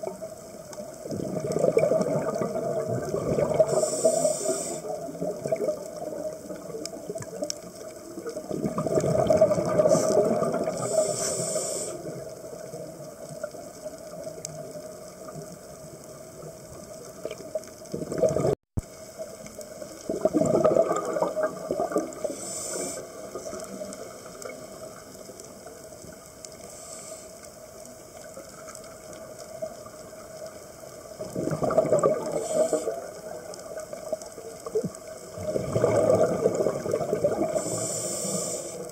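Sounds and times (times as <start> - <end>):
exhaled bubbles underwater: 0.0 - 26.6, 28.1 - 38.9
regulator inhale hiss: 3.5 - 5.3, 9.7 - 12.5, 22.1 - 25.0, 26.4 - 28.3, 32.2 - 33.3, 37.4 - 38.9.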